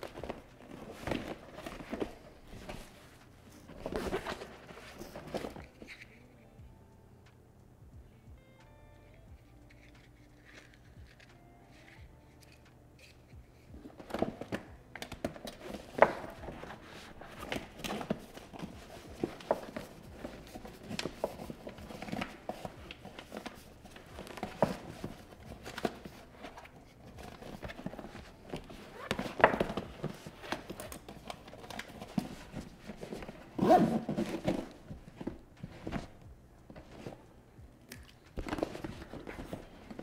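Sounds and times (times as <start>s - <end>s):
duffel bag rustling and crinkling: 0.0s - 5.9s, 13.8s - 37.4s, 38.2s - 40.0s
zipper pulled open: 28.8s - 29.8s, 33.2s - 34.8s.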